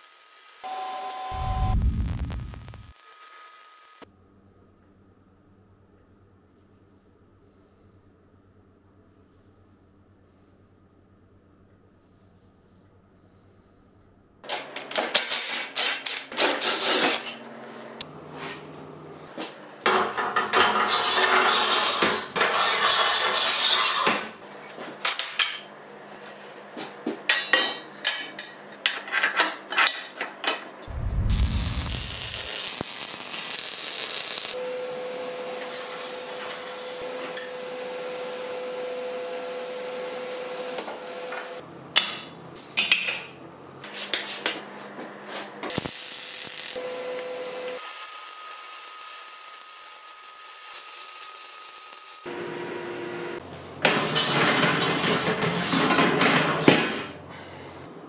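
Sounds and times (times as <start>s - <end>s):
hiss: 30.9s - 34.6s, 45.7s - 46.8s, 47.8s - 52.3s
running tool humming: 47.8s - 52.3s.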